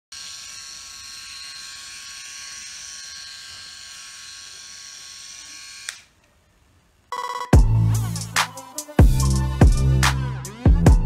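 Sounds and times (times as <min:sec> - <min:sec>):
electric shaver whining: 0:00.1 - 0:06.1.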